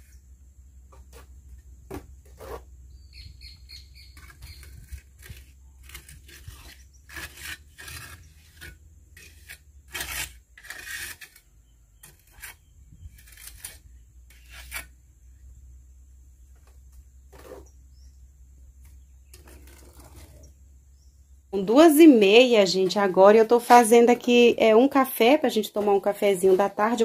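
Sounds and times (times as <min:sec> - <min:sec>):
birds chirping faintly: 0:00.0 - 0:08.6, 0:11.2 - 0:27.0
trowel scraping mortar: 0:02.2 - 0:02.7, 0:04.0 - 0:15.0, 0:17.3 - 0:17.8, 0:19.3 - 0:20.6.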